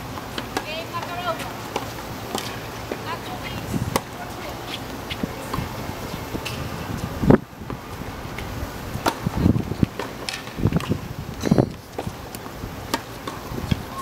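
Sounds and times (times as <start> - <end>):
rackets hitting tennis balls: 0.1 - 5.7, 9.0 - 13.9
tennis balls bouncing on hard court: 0.2 - 5.8, 9.0 - 13.9.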